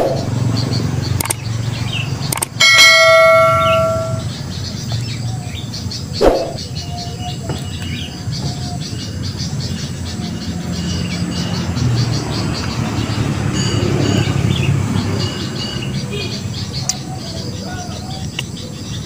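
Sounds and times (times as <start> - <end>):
click: 1.2 - 1.4
bell chime: 2.6 - 4.4, 13.5 - 14.4.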